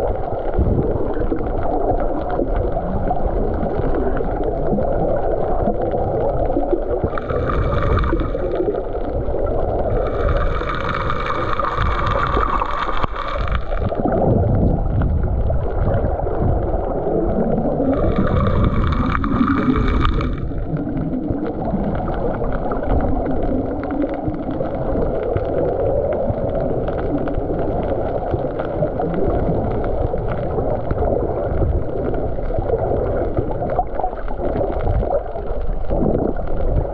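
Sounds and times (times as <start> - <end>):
air bubbles hissing: 0.0 - 36.9
muffled underwater rumble: 0.0 - 36.9.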